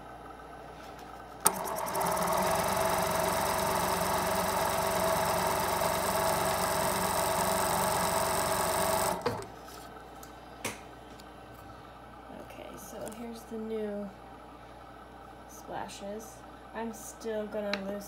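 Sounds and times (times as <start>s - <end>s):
sewing machine click: 1.4s - 3.1s
sewing machine running: 1.4s - 9.5s.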